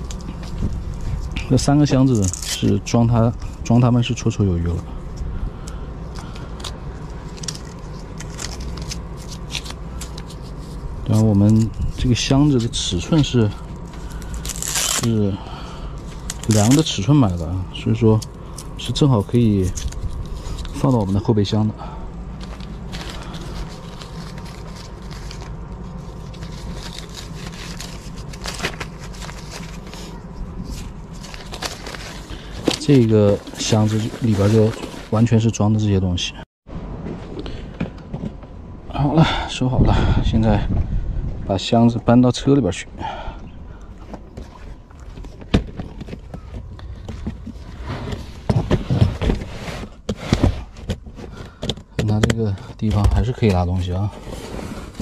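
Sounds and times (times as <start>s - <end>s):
steady low rumble: 0.0s - 55.0s
camping gear clicks and rustles: 16.0s - 21.3s, 22.3s - 35.3s, 43.9s - 55.0s.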